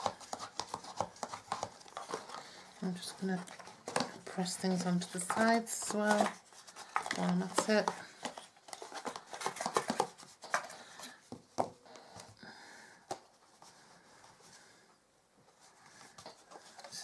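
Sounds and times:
cardstock box rustling: 0:00.0 - 0:11.8, 0:15.6 - 0:17.0.

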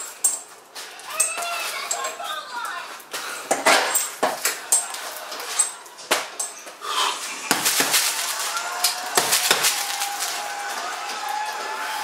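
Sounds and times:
gloves punching heavy bag: 0:07.5 - 0:10.2.

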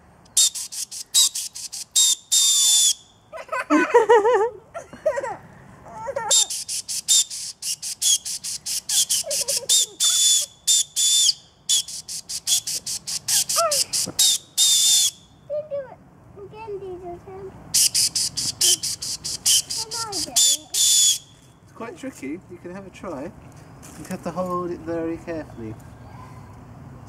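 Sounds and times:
shrill acorn whistle blasts: 0:00.3 - 0:03.2, 0:06.3 - 0:15.4, 0:17.7 - 0:21.4.

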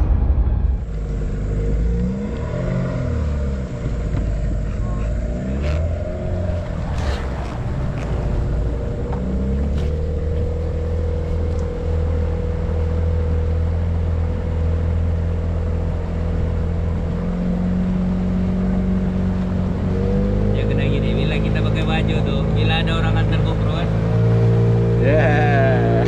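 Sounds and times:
hull wash through water: 0:00.0 - 0:26.0
outboard motor running: 0:00.8 - 0:19.8.

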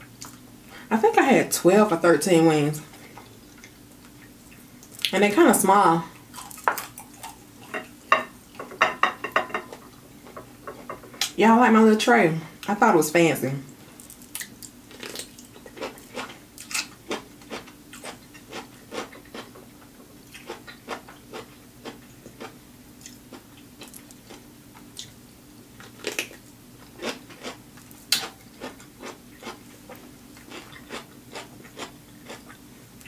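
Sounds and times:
chewing crunchy cucumber: 0:06.2 - 0:07.7, 0:14.1 - 0:19.6, 0:20.3 - 0:25.2, 0:25.8 - 0:32.7.

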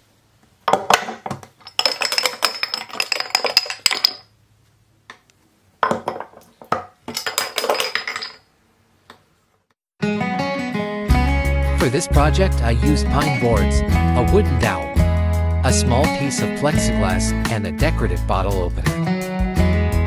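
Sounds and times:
caps rattling down wooden pegs: 0:00.7 - 0:04.3, 0:05.8 - 0:08.5.

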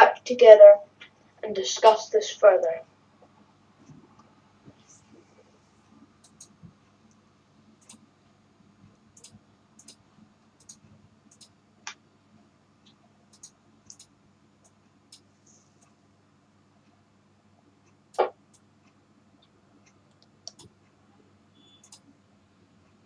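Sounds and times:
small clicks: 0:06.2 - 0:07.2, 0:09.2 - 0:10.0, 0:10.6 - 0:12.0, 0:12.8 - 0:16.0, 0:18.1 - 0:20.7, 0:21.6 - 0:22.1.

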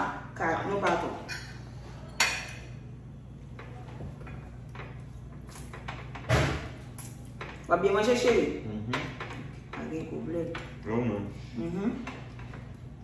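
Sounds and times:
forks clinking on plates: 0:00.9 - 0:02.8.

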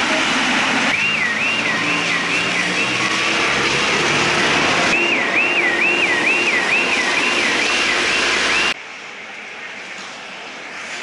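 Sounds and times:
tyres hissing on flooded road: 0:00.0 - 0:11.0
car alarm wailing: 0:00.9 - 0:03.6, 0:04.8 - 0:08.8.

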